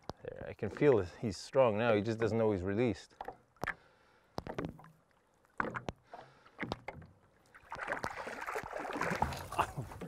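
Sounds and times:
water splashing: 0:04.4 - 0:10.0.

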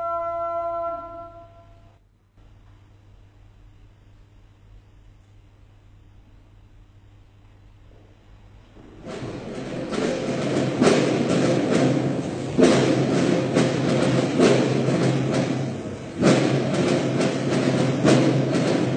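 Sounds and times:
held low tone: 0:00.0 - 0:02.0
deep ringing drum hits: 0:08.8 - 0:18.9.

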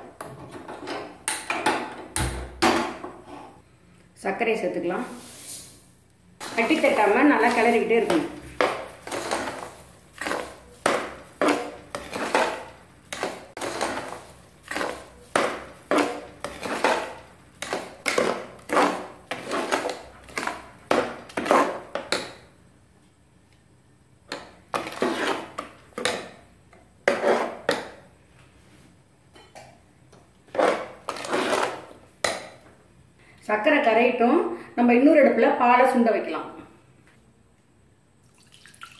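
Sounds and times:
metal ladle scraping a pan: 0:06.4 - 0:20.6, 0:24.8 - 0:25.6, 0:27.1 - 0:27.8, 0:30.5 - 0:31.9.

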